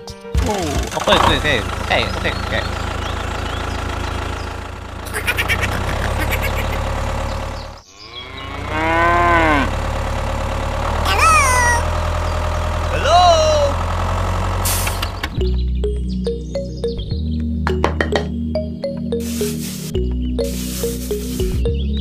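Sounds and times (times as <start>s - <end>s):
low engine drone: 0.7s - 16.8s
cow mooing: 8.0s - 9.8s.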